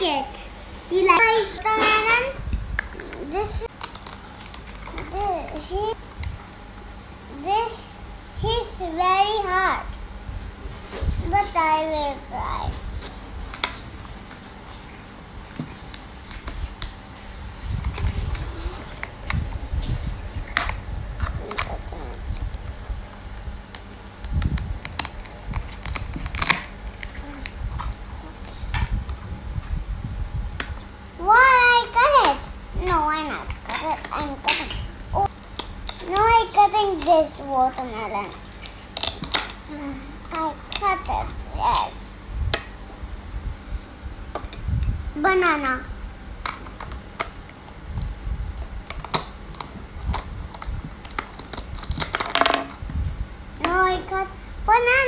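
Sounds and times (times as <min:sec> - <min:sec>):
loud plastic scrape: 0:17.4 - 0:21.6.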